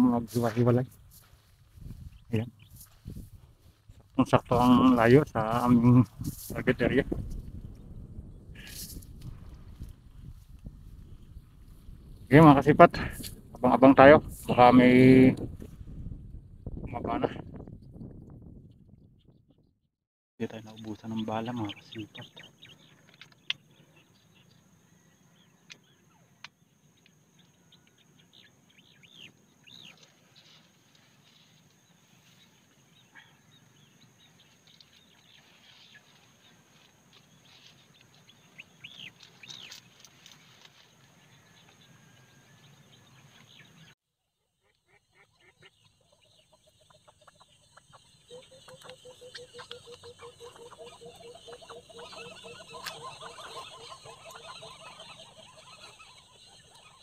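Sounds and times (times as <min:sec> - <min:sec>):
bird chirps: 0:20.5 - 0:30.6, 0:31.2 - 0:40.7, 0:44.6 - 0:57.0
ducks chattering calls: 0:44.6 - 0:57.0.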